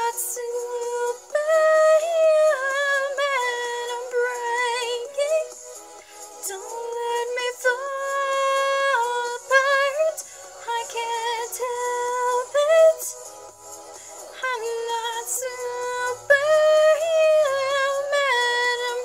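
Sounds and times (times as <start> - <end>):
woman singing: 0.0 - 5.6, 6.4 - 13.2, 14.3 - 19.0.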